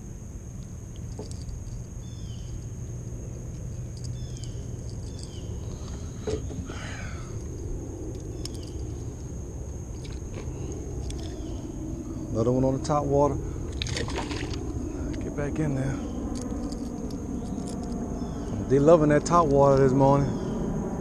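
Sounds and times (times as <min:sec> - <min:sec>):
high insect drone: 0:00.0 - 0:21.0
low rumble of handling noise: 0:00.0 - 0:21.0
bird warble: 0:01.1 - 0:12.3
bird chirps: 0:02.0 - 0:02.8, 0:03.7 - 0:07.3, 0:15.9 - 0:20.7.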